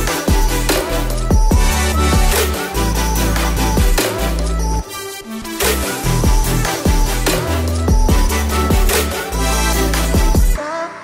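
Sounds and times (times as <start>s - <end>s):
steady drum beat: 0.0s - 4.3s, 6.2s - 10.6s
music with deep bass line: 0.0s - 10.6s.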